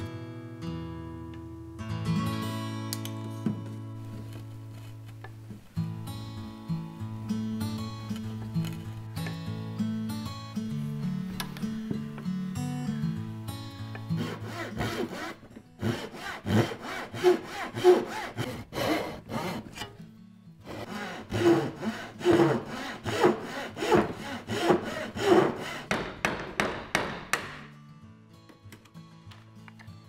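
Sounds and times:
hand saw cutting wood: 14.0 - 20.0, 20.6 - 27.6.

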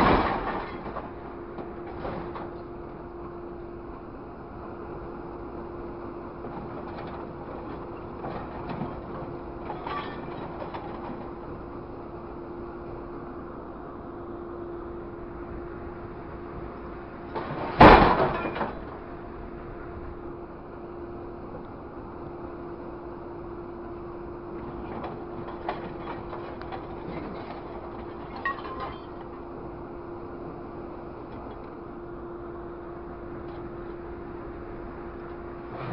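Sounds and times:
scrap metal clanks and scrapes: 0.0 - 1.2, 6.8 - 11.3, 17.3 - 18.9, 24.6 - 29.5, 35.7 - 35.9
machine engine and hydraulics humming: 0.0 - 35.9
scrap metal clanking and ringing: 9.7 - 10.5, 17.9 - 18.8, 25.7 - 29.4.

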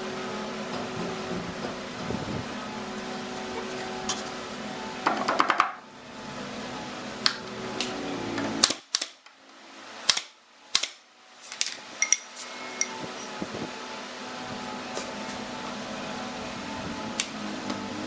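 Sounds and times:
steady hum: 0.0 - 18.0
pneumatic nailer firing: 8.6 - 9.3, 10.0 - 11.0.

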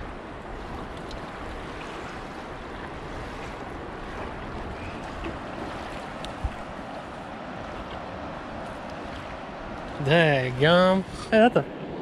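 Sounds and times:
wind noise on microphone: 0.0 - 6.8
river water rushing: 0.0 - 12.0.

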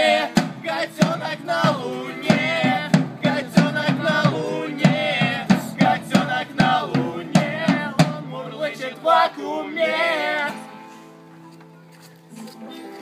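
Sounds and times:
drum beat: 0.0 - 8.4
men singing together: 0.0 - 10.6
acoustic guitars strummed: 0.0 - 11.5.

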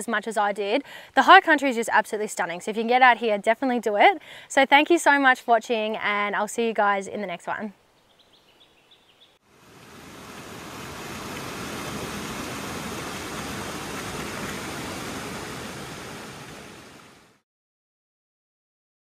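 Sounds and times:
creek rushing over boulders: 9.4 - 17.4.

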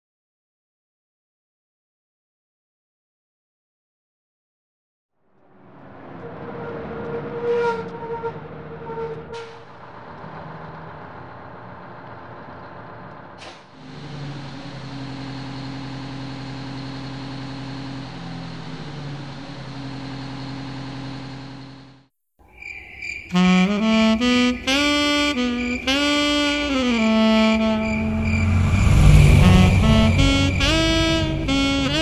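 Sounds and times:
bus engine running: 5.4 - 22.1, 23.4 - 32.0.

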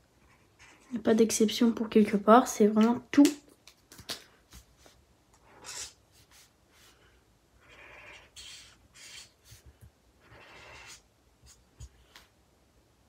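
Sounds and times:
marker rubbing across paper: 4.8 - 7.1, 8.3 - 9.7, 10.3 - 12.0.

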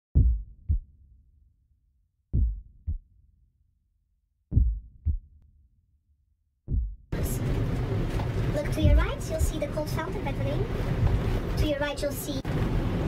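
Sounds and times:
heartbeat thumps: 0.2 - 0.9, 2.3 - 3.1, 4.5 - 5.4, 6.7 - 7.2, 8.8 - 9.7.

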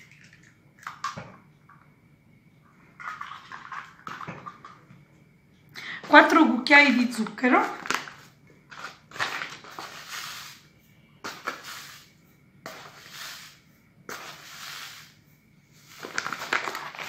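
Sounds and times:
sugar scooped and poured: 9.6 - 10.6, 11.2 - 15.2.

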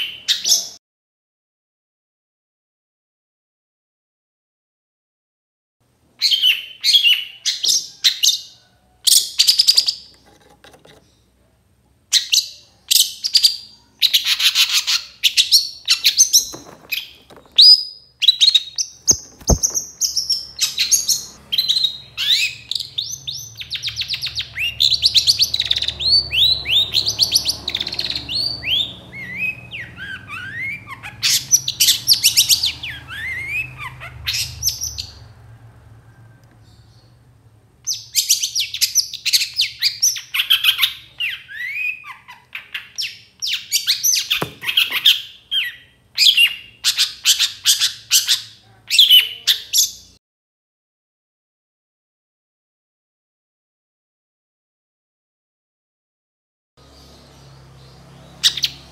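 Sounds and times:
bird singing with trills and whistles: 6.2 - 10.1, 12.1 - 35.2, 37.9 - 50.2, 57.0 - 58.9.

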